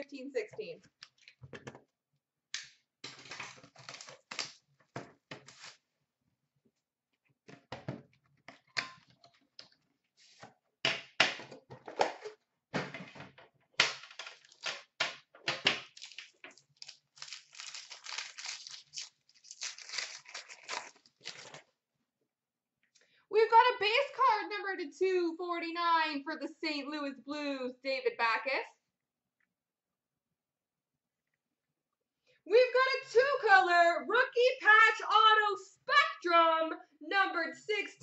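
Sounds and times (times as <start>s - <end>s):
card packaging tearing and crinkling: 3.0s - 4.6s, 5.4s - 5.8s, 13.8s - 15.0s, 15.7s - 21.7s.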